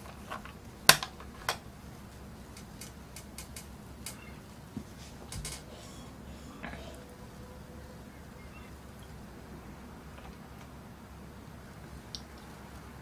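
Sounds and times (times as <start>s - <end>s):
light ticks: 12.1s - 12.6s.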